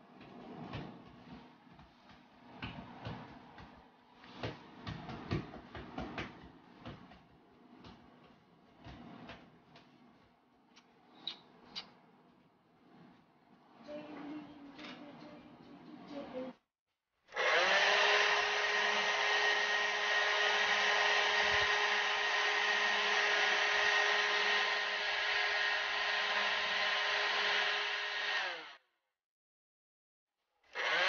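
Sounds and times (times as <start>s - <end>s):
electric blower motor running: 17.3s - 28.8s, 30.8s - 31.0s.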